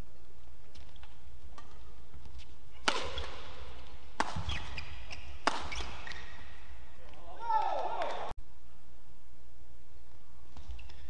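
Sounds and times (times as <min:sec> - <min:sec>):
racket hitting shuttlecock: 0:00.7 - 0:08.2
shoe squeaks on court: 0:04.3 - 0:06.6.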